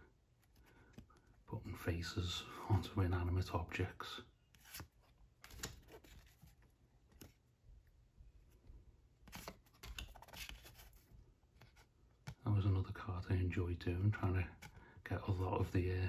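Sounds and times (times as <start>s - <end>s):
cards rustling and sliding: 0.3s - 1.4s, 4.5s - 7.5s, 9.2s - 12.4s.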